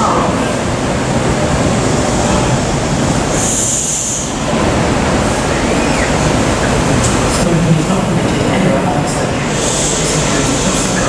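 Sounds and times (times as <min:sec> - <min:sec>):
rail wheel and track noise: 0:00.0 - 0:11.0.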